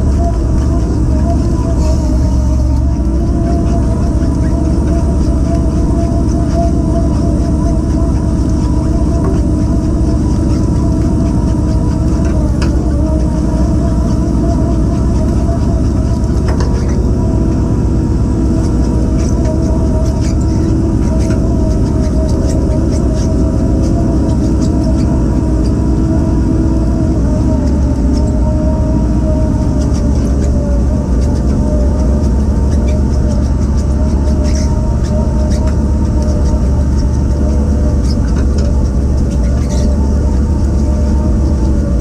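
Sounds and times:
machinery droning: 0.0s - 42.0s
machinery whine: 0.0s - 42.0s.

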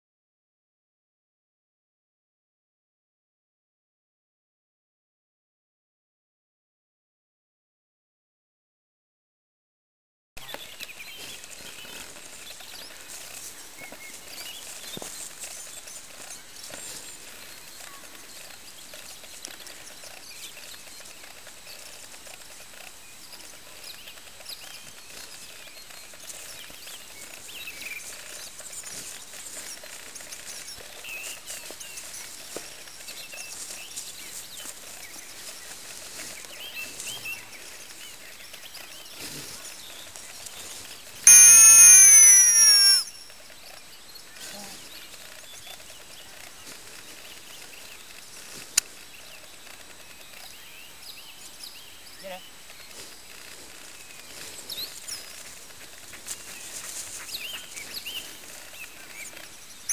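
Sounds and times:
outdoor ambient hiss: 10.4s - 59.9s
bird chirps: 41.3s - 43.4s.

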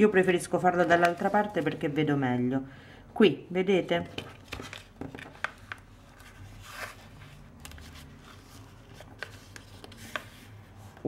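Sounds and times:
paper rustling as it is folded: 0.6s - 2.1s, 4.2s - 11.0s.

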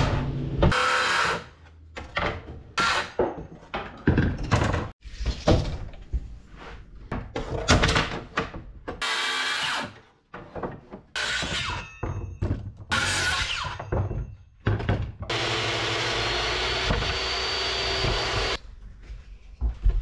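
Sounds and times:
circular saw cutting wood: 15.3s - 18.6s.

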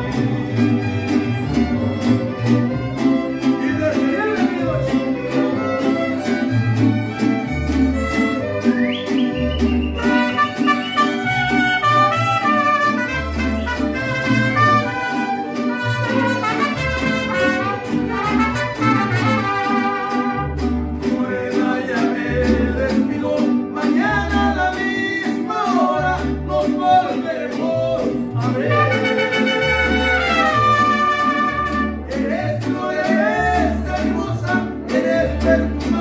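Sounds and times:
violins: 0.0s - 3.9s, 4.7s - 20.6s
plucked bass: 0.0s - 36.0s
strummed guitars: 0.0s - 36.0s
man singing: 3.0s - 6.5s, 21.0s - 36.0s
trumpets: 10.0s - 20.6s, 28.7s - 32.1s.

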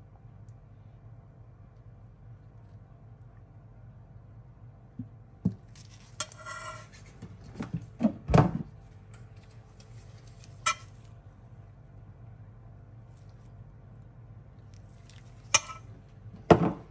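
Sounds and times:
metal spoon clinking on steel bowl: 15.6s - 15.9s.

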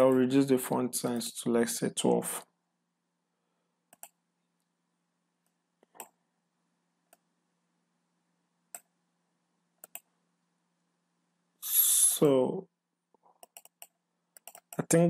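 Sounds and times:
computer mouse clicks: 3.9s - 4.2s, 5.4s - 6.2s, 9.8s - 10.1s, 13.2s - 14.8s.

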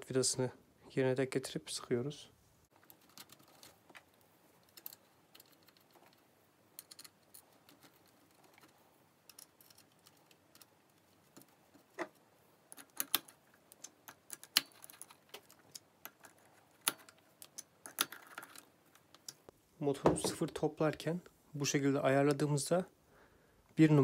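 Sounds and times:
small metallic clicks and taps: 2.8s - 19.6s.

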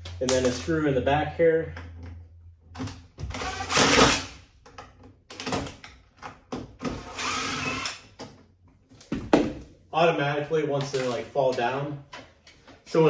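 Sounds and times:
power drill motor running: 3.4s - 4.2s, 7.0s - 8.0s.

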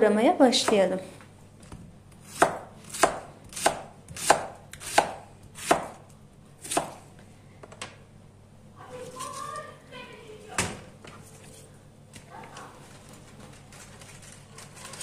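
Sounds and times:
knife slicing cabbage on board: 2.2s - 6.0s, 6.6s - 7.0s.

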